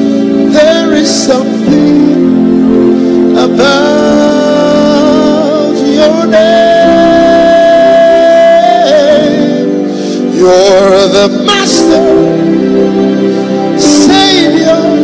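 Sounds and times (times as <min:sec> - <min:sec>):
person singing with vibrato: 0:00.0 - 0:15.0
sustained accompaniment chords: 0:00.0 - 0:15.0.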